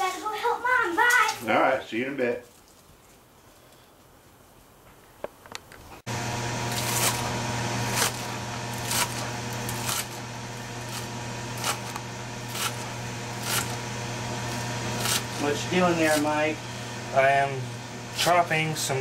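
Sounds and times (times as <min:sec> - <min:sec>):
low electrical hum: 0:04.1 - 0:19.0
knife chopping on cutting board: 0:07.9 - 0:10.2, 0:10.9 - 0:13.8, 0:14.5 - 0:15.4.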